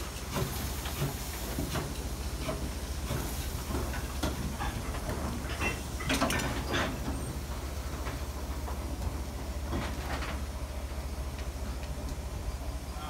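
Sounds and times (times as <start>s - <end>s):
steam hissing: 0.0s - 9.7s
train low rumble: 0.0s - 13.0s.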